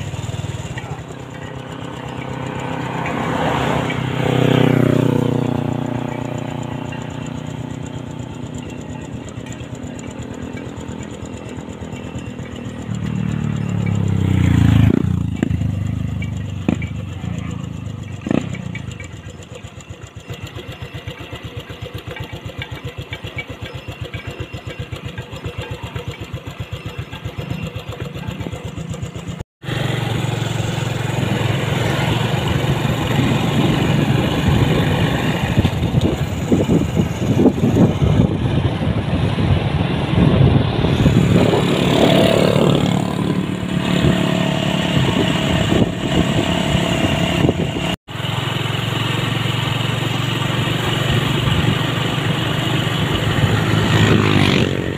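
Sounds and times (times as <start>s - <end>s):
motorcycle engine running: 0.0s - 54.9s
rushing wind noise: 30.9s - 48.0s.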